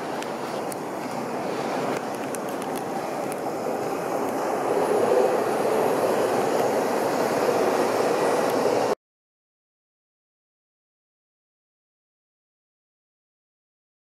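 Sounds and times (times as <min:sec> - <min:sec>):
distant jet airliner rumble: 0:00.0 - 0:09.0.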